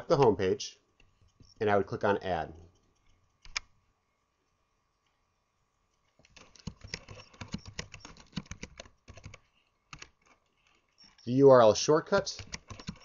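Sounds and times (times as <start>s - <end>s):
computer mouse click: 3.0s - 3.7s, 12.4s - 13.0s
keyboard typing: 6.2s - 11.3s, 12.3s - 13.0s.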